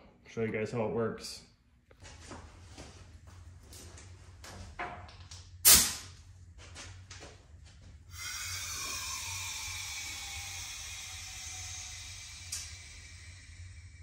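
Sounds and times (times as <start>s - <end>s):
compressed air blast: 5.6s - 6.1s, 8.2s - 14.0s
air hissing through line: 8.1s - 14.0s.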